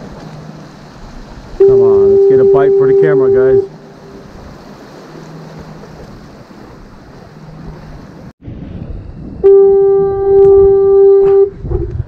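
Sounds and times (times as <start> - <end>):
surf on rocks: 0.0 - 12.0
wind: 0.0 - 12.0
foghorn blast: 1.6 - 4.3, 9.4 - 11.6.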